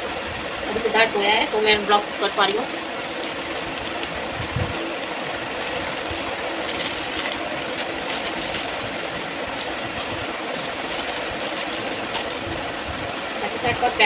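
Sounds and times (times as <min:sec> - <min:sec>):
machine whirring: 0:00.0 - 0:13.6
plastic packet crinkling: 0:01.4 - 0:12.6.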